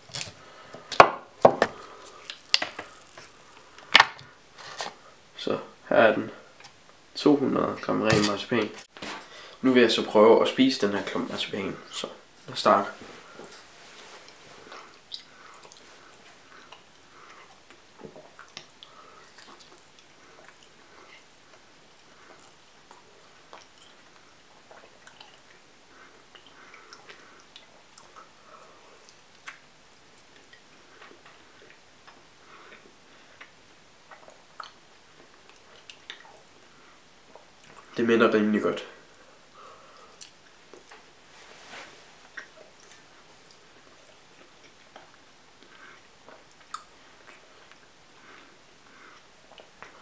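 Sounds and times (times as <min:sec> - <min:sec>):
person chewing: 0:01.6 - 0:03.9, 0:14.2 - 0:38.0, 0:39.1 - 0:41.1, 0:42.2 - 0:50.0
mouth clicks and smacks: 0:14.7 - 0:15.9, 0:29.0 - 0:32.8, 0:33.4 - 0:36.7.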